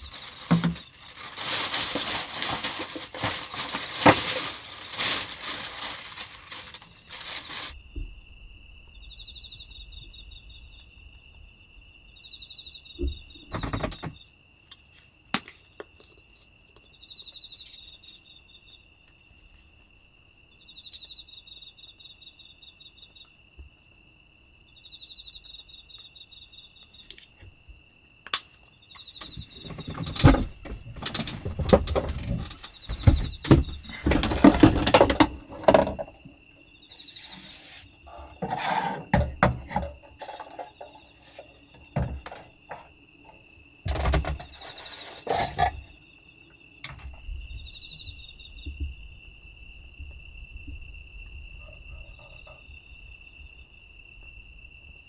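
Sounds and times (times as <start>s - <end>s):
items clattering on wooden counter: 0.0s - 7.8s, 29.2s - 36.3s, 38.1s - 42.9s, 43.9s - 45.9s
crickets chirping: 0.0s - 55.0s.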